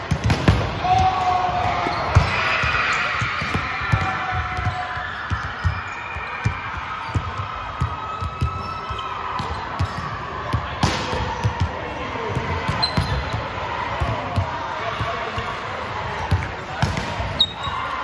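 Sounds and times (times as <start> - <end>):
basketball bouncing: 1.9 - 5.8, 6.4 - 8.7, 9.4 - 14.5.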